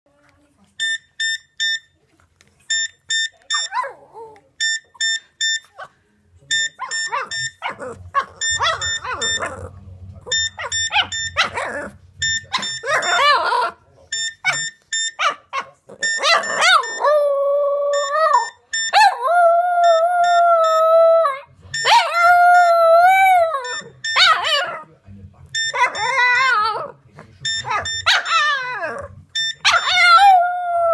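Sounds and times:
phone ringing beeps: 2.7 - 3.7, 4.6 - 5.7, 6.5 - 7.6, 8.4 - 9.6, 10.3 - 11.5, 12.2 - 13.3, 14.1 - 15.2, 16.0 - 17.2, 17.9 - 19.0, 25.6 - 26.3, 27.4 - 28.1, 29.4 - 29.8
dog yelping and howling: 12.5 - 13.8, 15.2 - 24.8, 25.7 - 27.0, 27.7 - 30.9.

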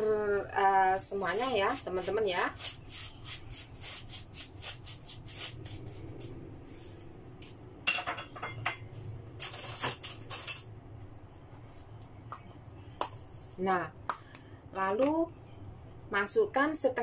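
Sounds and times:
crockery and utensils clattering: 7.9 - 10.8.

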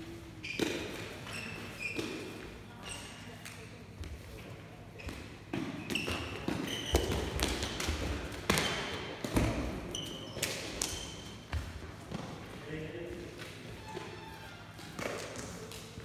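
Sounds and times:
sneaker squeaks: 0.3 - 3.4, 4.8 - 7.6, 8.5 - 12.2, 13.7 - 15.6.

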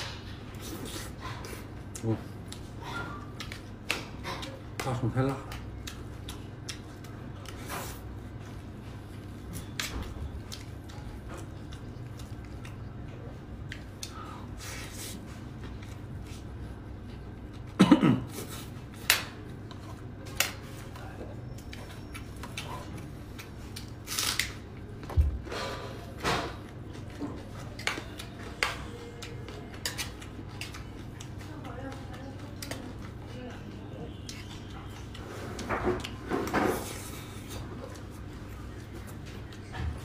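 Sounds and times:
chewing sounds: 0.5 - 17.8, 26.6 - 36.3.

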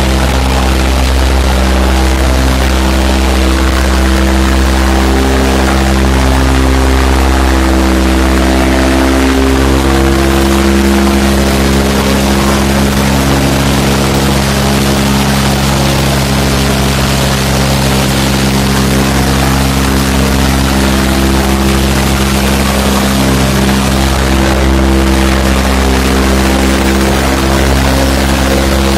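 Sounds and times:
diesel tractor engine under load: 0.0 - 28.9.

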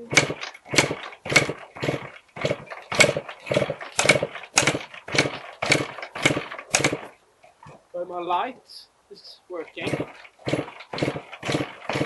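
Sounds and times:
two-stroke engine running unevenly: 0.0 - 7.2, 9.6 - 12.0.

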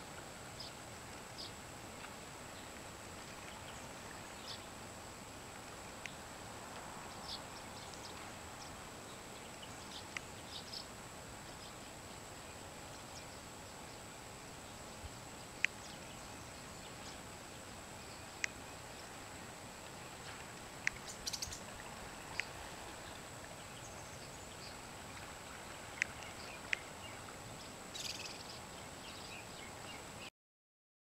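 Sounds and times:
steady hiss: 0.0 - 30.3
bird chirps: 20.9 - 21.6, 27.9 - 29.7.

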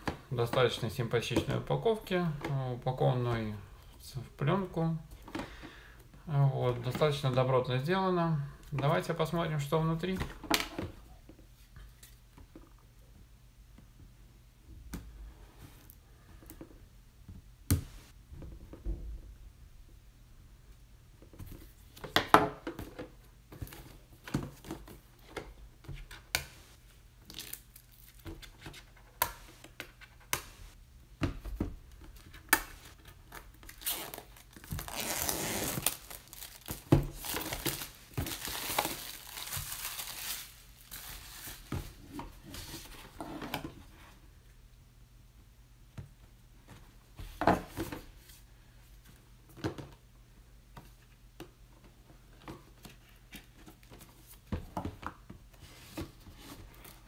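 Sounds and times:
plastic film crinkling and tearing: 33.6 - 41.6
knife slitting plastic film: 33.7 - 41.0.

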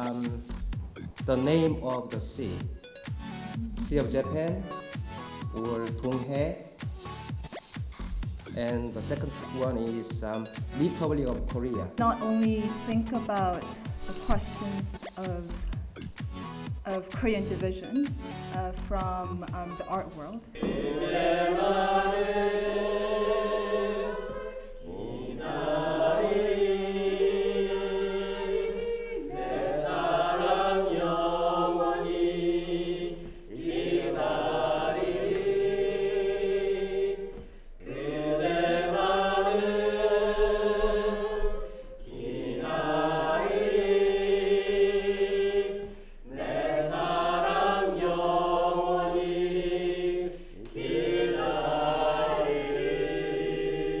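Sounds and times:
group of people singing: 16.9 - 54.0.

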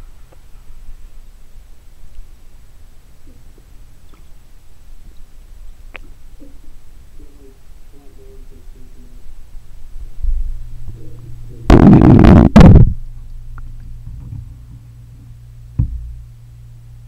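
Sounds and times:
low underwater rumble: 9.8 - 17.0.

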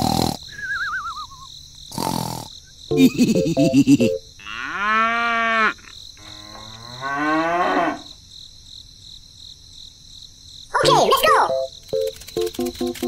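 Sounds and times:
cow mooing: 4.4 - 8.1.

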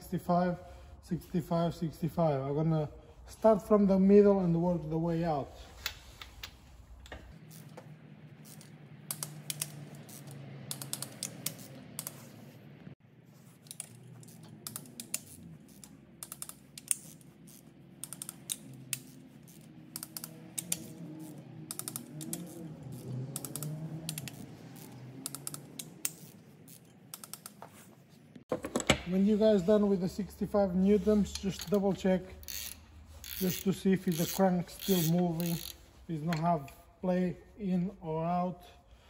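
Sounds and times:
torque wrench ratcheting clicks: 8.4 - 12.2, 13.7 - 27.6, 31.3 - 31.8, 32.4 - 36.4.

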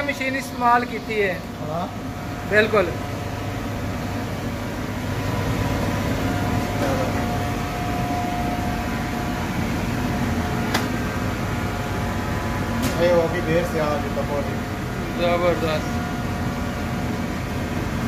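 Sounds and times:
kitchen machinery hum: 0.0 - 18.0
sharp click: 10.7 - 11.0.

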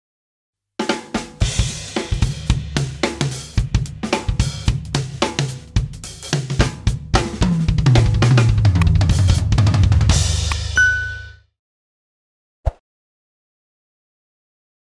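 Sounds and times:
drum kit groove: 0.8 - 11.4.

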